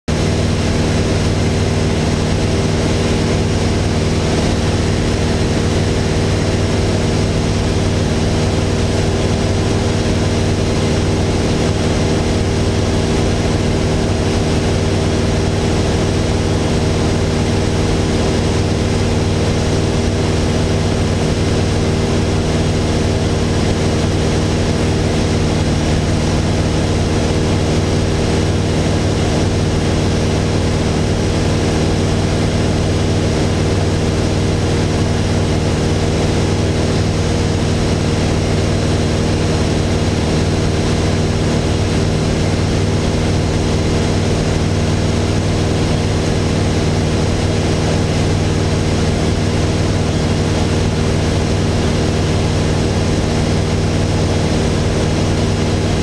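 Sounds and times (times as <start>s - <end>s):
airplane engine drone in cockpit: 0.1s - 56.0s.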